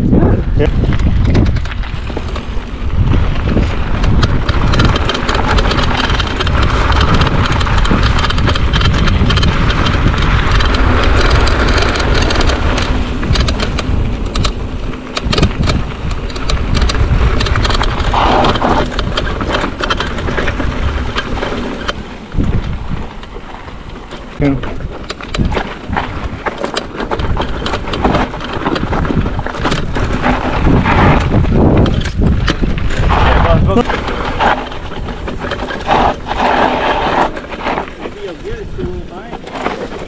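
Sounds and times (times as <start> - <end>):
bike rattling over bumps: 0.0 - 40.0
bike tyres rumbling: 0.0 - 40.0
wind on microphone: 0.0 - 40.0.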